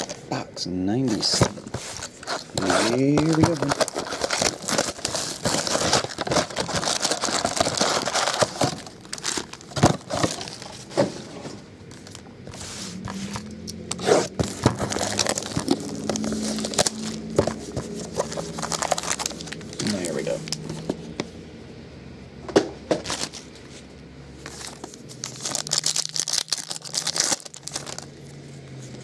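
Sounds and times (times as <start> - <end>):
plastic wrapping crinkling and tearing: 1.0 - 10.9, 13.9 - 20.8, 24.5 - 28.2.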